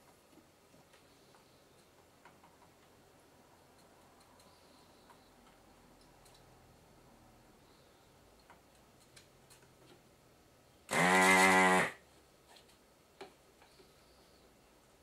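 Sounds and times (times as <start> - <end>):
desoldering pump buzzing: 10.9 - 12.0.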